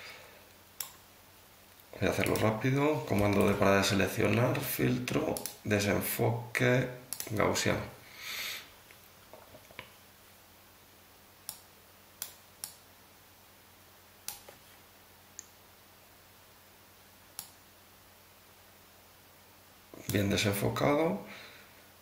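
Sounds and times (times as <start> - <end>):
faint low hum: 0.0 - 22.0
computer mouse clicking: 2.2 - 2.5, 5.3 - 5.6, 7.1 - 7.3, 11.5 - 12.8, 14.2 - 14.6, 17.4 - 17.6.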